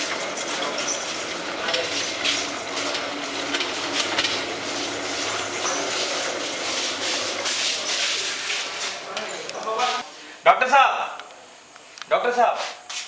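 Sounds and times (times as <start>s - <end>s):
knocks and clatter: 0.0s - 8.8s
hurried footsteps: 0.0s - 10.0s
trolley wheels rattling: 0.0s - 10.0s.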